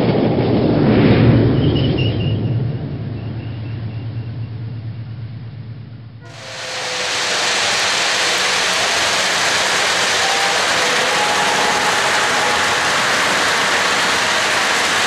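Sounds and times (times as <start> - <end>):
model train wheels on rail: 6.2 - 15.0.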